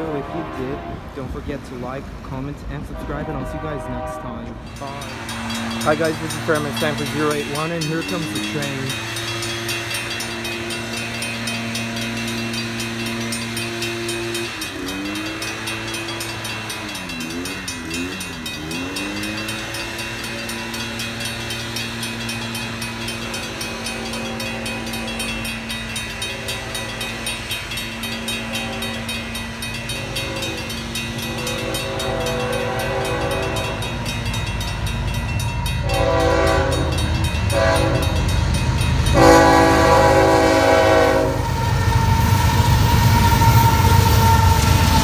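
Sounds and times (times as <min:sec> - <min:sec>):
locomotive horn blasts: 0:00.0 - 0:01.4, 0:02.8 - 0:08.9, 0:22.5 - 0:27.3, 0:28.1 - 0:34.1, 0:35.7 - 0:38.4, 0:39.0 - 0:45.0
locomotive rumbling: 0:00.0 - 0:45.0
railroad crossing bell ringing: 0:00.0 - 0:45.0.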